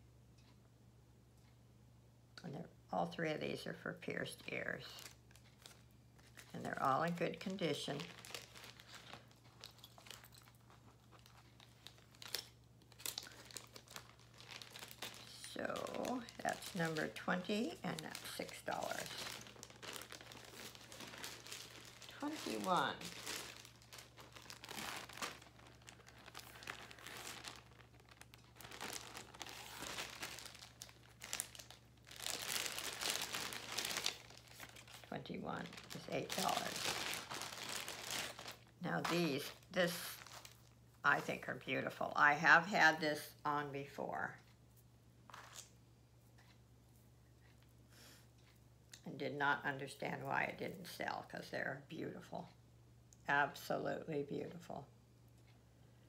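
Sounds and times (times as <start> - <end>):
packaging rustling and crinkling: 4.9 - 40.8, 45.3 - 45.7.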